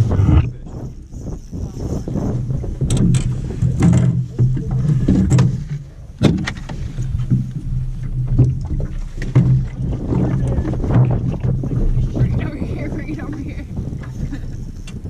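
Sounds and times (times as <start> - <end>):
outboard motor running: 0.0 - 15.0
sharp knocks on boat: 2.8 - 11.5.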